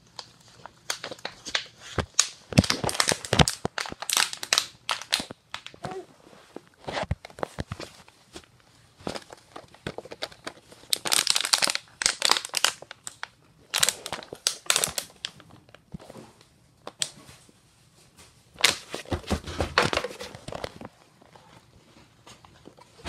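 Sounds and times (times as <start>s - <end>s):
plastic bottle crinkling: 0.1s - 16.0s, 18.6s - 21.5s.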